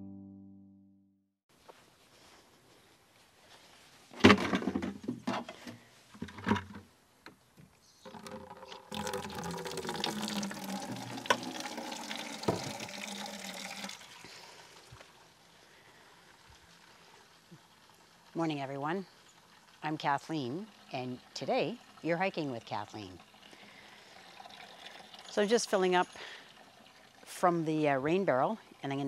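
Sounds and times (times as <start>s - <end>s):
knocks and clatter of can: 4.2s - 6.8s, 8.1s - 9.4s, 12.4s - 12.9s
water splashing into watering can: 8.1s - 15.2s, 19.2s - 27.5s.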